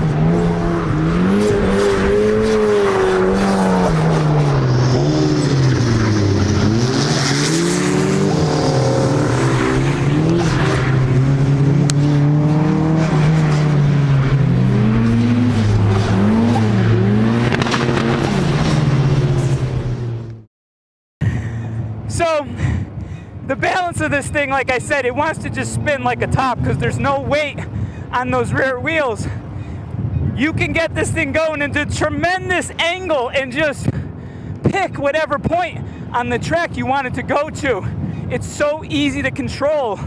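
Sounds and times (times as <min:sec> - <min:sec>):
car engine revving hard: 0:00.0 - 0:20.3.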